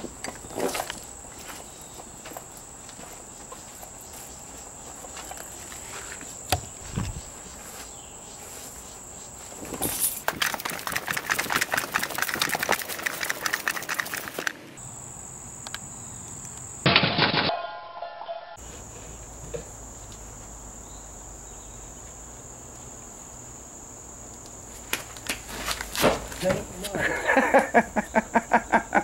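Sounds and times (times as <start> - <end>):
crickets trilling: 0.0 - 16.9, 18.6 - 29.0
rustling scuffing footsteps: 0.6 - 10.3, 24.7 - 27.2
short loud burst: 16.9 - 18.6.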